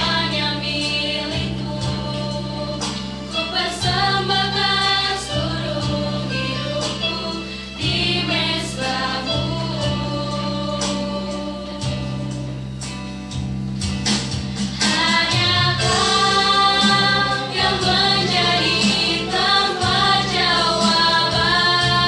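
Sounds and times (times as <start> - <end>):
women singing in harmony: 0.0 - 12.4, 14.8 - 22.0.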